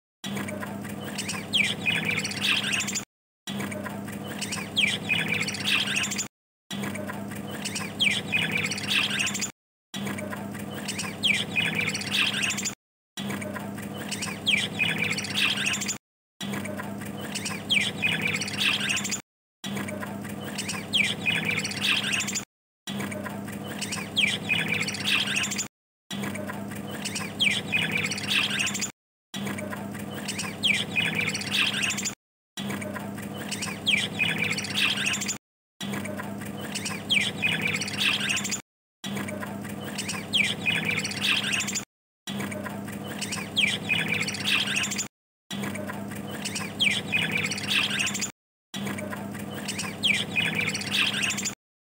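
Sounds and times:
budgerigars chirping and chattering: 0:01.0 - 0:03.0, 0:04.3 - 0:06.3, 0:07.6 - 0:09.5, 0:10.8 - 0:12.8, 0:14.0 - 0:16.0, 0:17.2 - 0:19.2, 0:20.4 - 0:22.4, 0:23.7 - 0:25.7, 0:27.0 - 0:28.9, 0:30.1 - 0:32.2, 0:33.3 - 0:35.4, 0:36.6 - 0:38.6, 0:39.8 - 0:41.8, 0:43.1 - 0:45.1, 0:46.3 - 0:48.3, 0:49.5 - 0:51.6.

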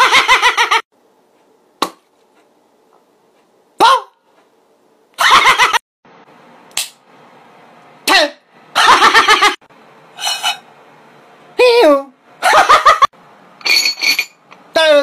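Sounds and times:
faint room hum: 0:00.0 - 0:15.0
man making comic vocal noises: 0:03.8 - 0:04.2.

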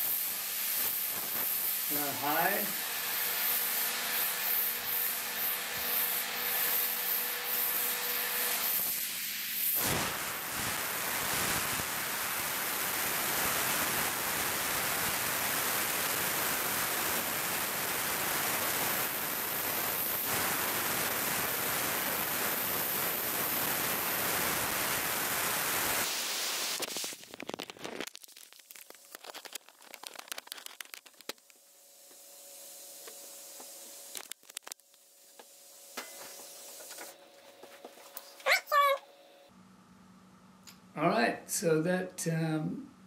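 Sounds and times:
heat gun blowing air: 0:00.0 - 0:27.2.

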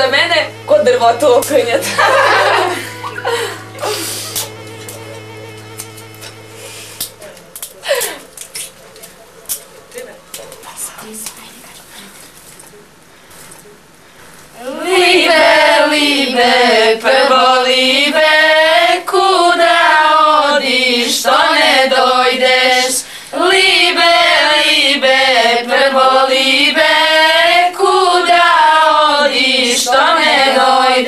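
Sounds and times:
women singing folk song in unison: 0:14.6 - 0:31.0.

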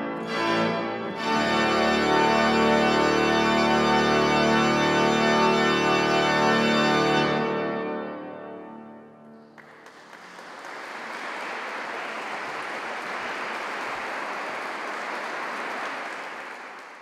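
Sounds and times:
pipe organ chord: 0:00.0 - 0:09.5
audience applause: 0:09.5 - 0:17.0.

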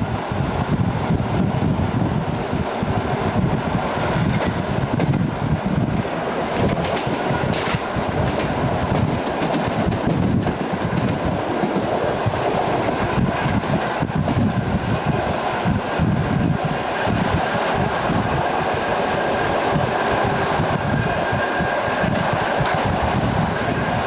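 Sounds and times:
train wheels rumbling on rails: 0:00.0 - 0:24.0
rail joint clicks: 0:03.2 - 0:14.7, 0:16.5 - 0:24.0.

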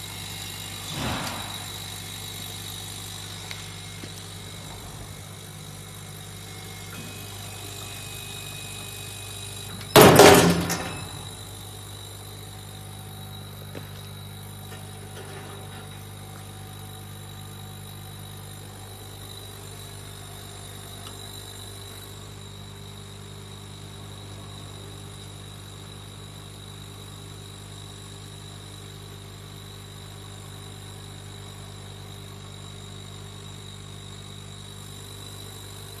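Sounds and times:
faint high whine: 0:00.0 - 0:25.4
workshop machinery humming: 0:00.0 - 0:36.0.

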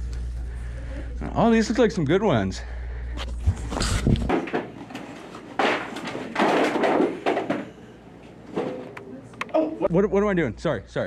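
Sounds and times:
cardboard boxes knocking: 0:05.6 - 0:07.7.

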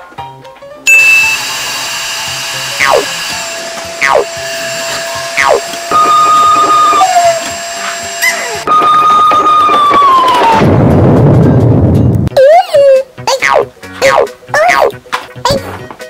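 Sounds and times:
vacuum cleaner whining: 0:00.9 - 0:10.6
background music: 0:08.4 - 0:16.0.

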